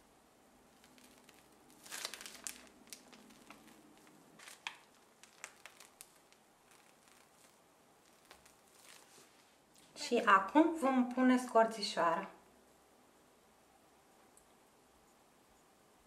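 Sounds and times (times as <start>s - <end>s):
piping bag crinkling: 0.7s - 10.5s.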